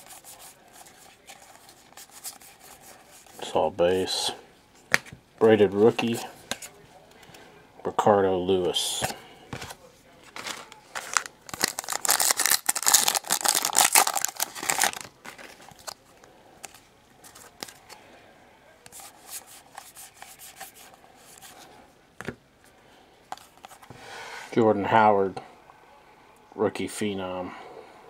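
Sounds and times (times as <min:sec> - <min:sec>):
wrapper tearing and crinkling: 0:10.4 - 0:16.0.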